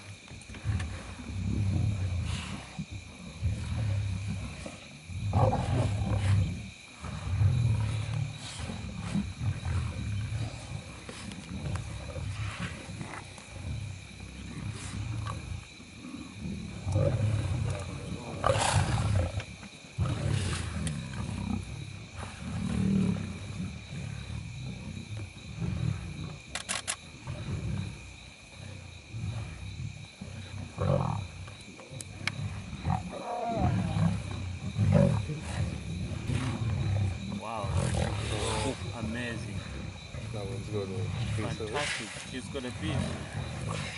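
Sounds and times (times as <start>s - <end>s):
lions growling: 0.0s - 43.9s
sharp clicks: 26.5s - 27.0s.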